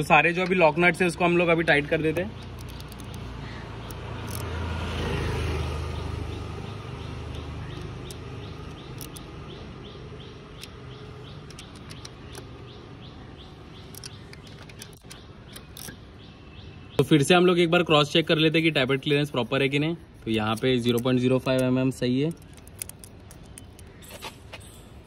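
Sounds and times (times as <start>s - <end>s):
small bird chirping: 1.1s - 17.1s, 19.0s - 25.0s
vehicle rumbling past: 2.5s - 11.3s.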